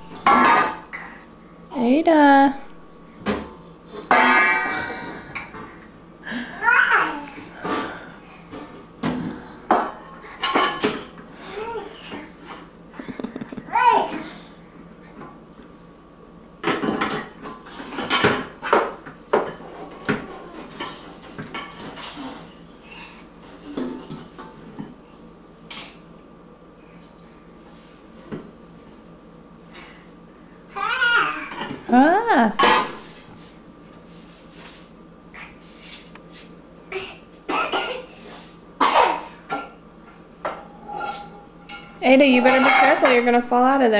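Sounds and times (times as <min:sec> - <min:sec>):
metal pots and pans clanking: 0:04.1 - 0:04.9, 0:40.5 - 0:43.2
babies rustling and shuffling: 0:32.9 - 0:36.6.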